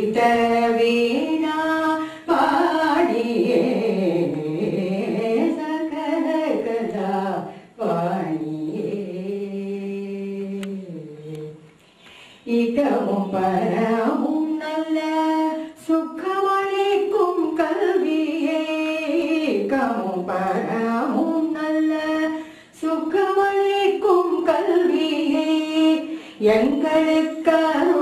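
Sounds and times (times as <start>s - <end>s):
woman singing sliding notes: 12.4s - 28.0s.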